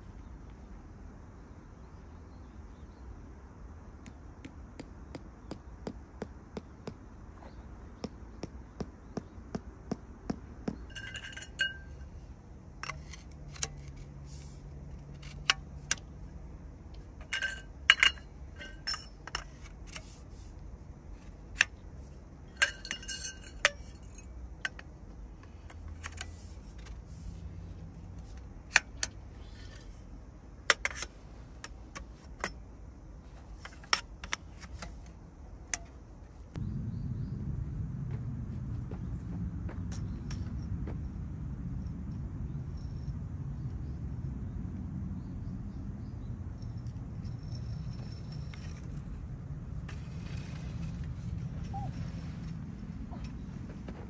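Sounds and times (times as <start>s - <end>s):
tent poles clinking together: 10.8s - 27.4s, 28.0s - 36.3s, 46.6s - 54.0s.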